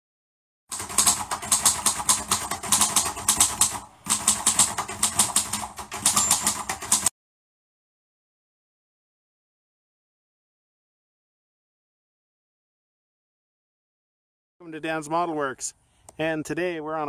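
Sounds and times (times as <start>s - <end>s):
rapid mechanical clicking: 0.7s - 7.1s.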